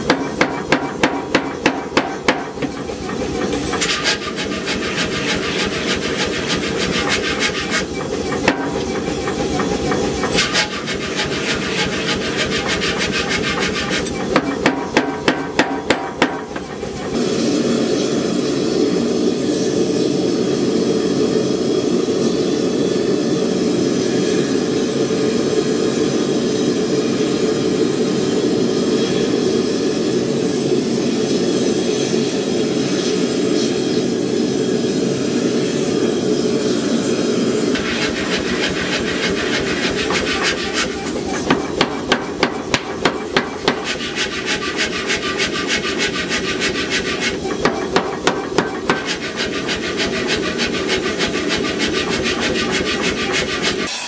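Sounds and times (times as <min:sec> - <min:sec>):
power hammer striking steel: 0:00.0 - 0:17.0, 0:37.8 - 0:54.0.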